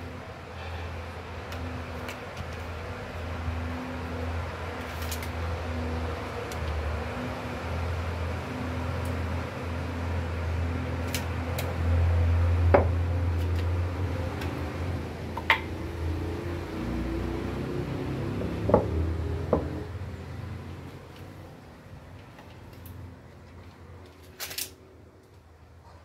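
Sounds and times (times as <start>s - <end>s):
wooden bench legs knocking on concrete: 19.5s - 19.8s.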